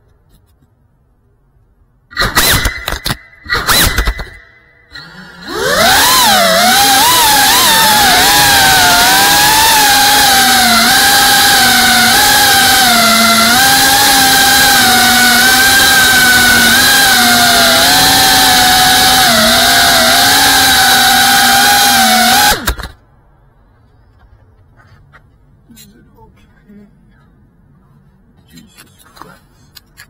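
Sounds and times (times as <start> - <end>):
drone motors whining: 2.1 - 23.0.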